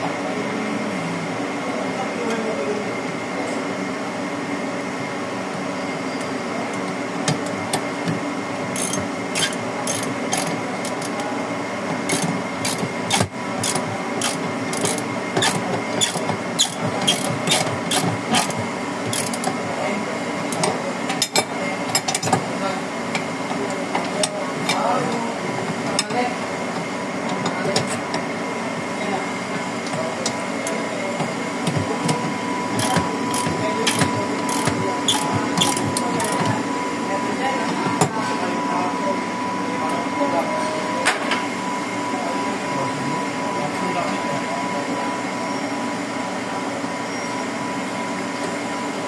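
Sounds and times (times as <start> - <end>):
machinery hum: 0.0 - 49.0
hand tools clicking on metal: 32.8 - 36.5.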